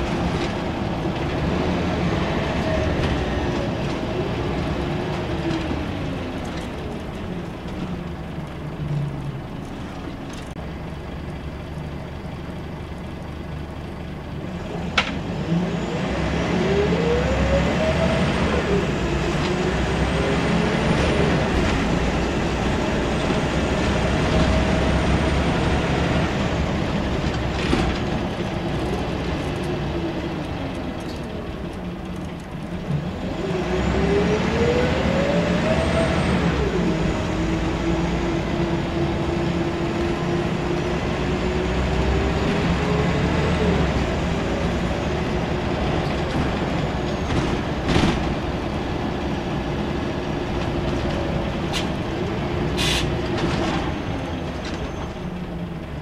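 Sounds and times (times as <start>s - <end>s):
bus engine whine: 0.0s - 56.0s.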